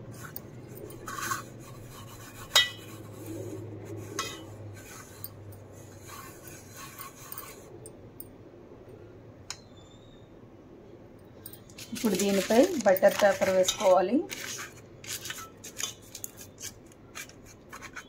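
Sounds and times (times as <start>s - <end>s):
scratchy rubbing in cake mould: 1.0s - 7.7s, 11.8s - 18.0s.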